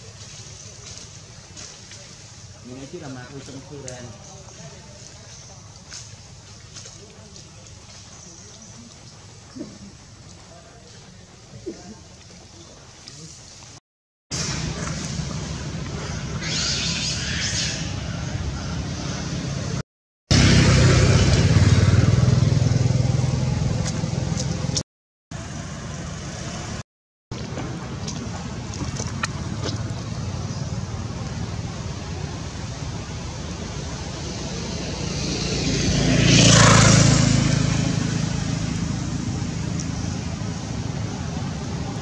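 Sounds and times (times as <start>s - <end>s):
motorcycle passing: 14.4s - 24.8s, 33.0s - 42.0s
vehicle passing: 29.0s - 42.0s.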